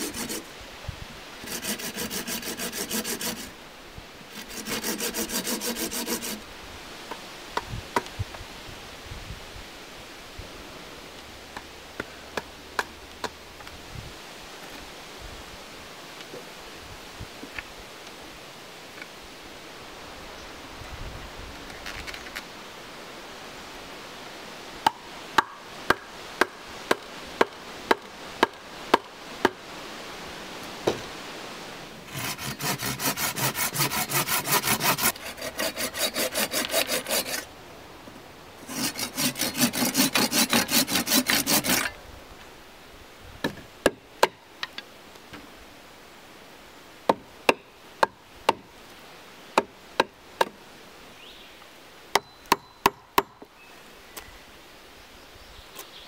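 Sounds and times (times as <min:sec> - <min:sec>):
saw cutting wood: 0:00.0 - 0:00.5, 0:01.4 - 0:03.6, 0:04.3 - 0:06.4, 0:32.1 - 0:37.5, 0:38.6 - 0:42.0.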